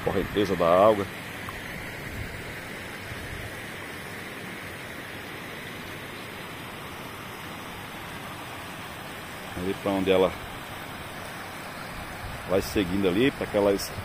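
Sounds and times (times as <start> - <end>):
water rushing over rocks: 0.0 - 14.0.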